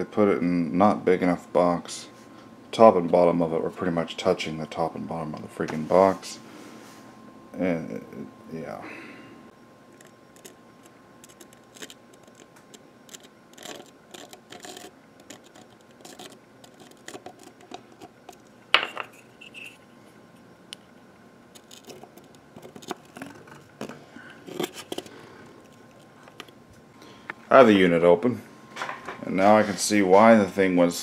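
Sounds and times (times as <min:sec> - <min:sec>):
scratches and rubs: 0:10.0 - 0:18.4, 0:21.6 - 0:26.2.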